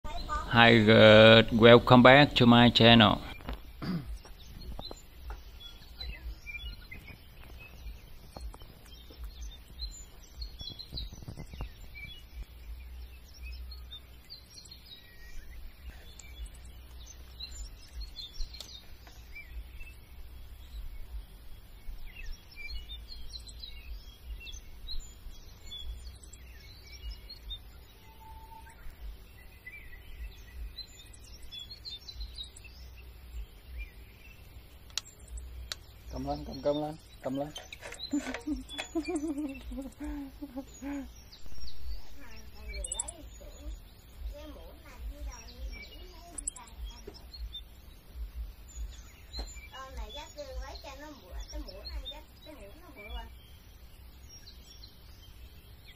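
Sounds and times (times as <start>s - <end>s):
small birds chirping: 0.0s - 55.9s
low steady rumble: 0.1s - 37.2s.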